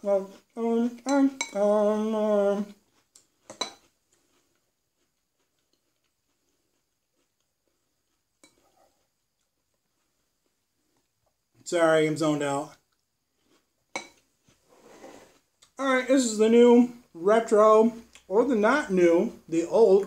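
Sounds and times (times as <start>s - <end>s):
man humming: 0.0s - 2.8s.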